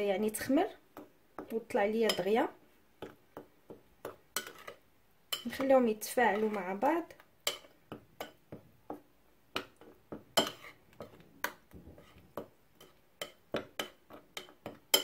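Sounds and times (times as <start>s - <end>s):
metal utensil clinking on bowl: 12.8s - 15.0s.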